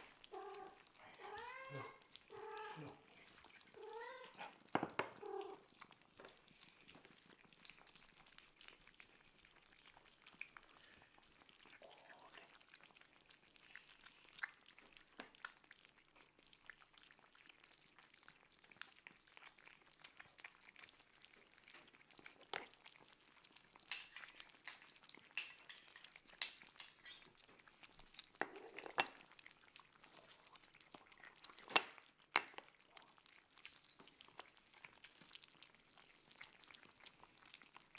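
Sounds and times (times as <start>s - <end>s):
cats eating wet food: 0.0s - 37.9s
kitten meowing: 0.3s - 3.0s, 3.7s - 4.5s.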